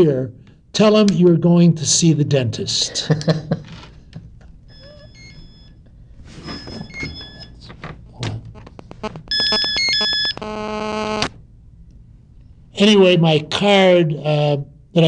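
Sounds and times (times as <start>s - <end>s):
high beeping ringtone: 4.7s - 5.8s, 8.9s - 11.2s
steady buzzing tone: 8.5s - 11.4s.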